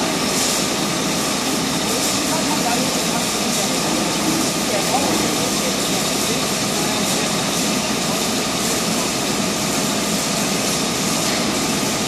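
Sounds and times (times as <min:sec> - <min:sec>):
industrial machinery hiss and hum: 0:00.0 - 0:12.0.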